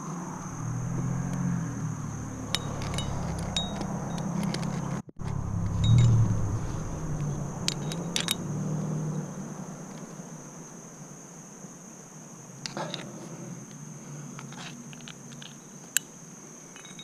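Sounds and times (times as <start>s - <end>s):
insects droning: 0.0s - 17.0s
low rumble: 0.4s - 4.2s, 5.2s - 9.2s
climbing gear metallic clinks: 2.4s - 5.0s, 16.7s - 17.0s.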